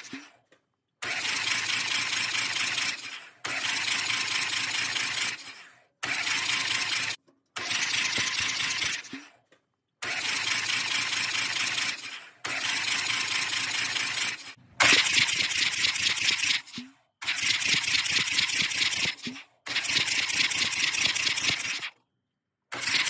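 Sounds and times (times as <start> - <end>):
engine cranking by starter motor: 0.0 - 9.4, 10.0 - 22.0.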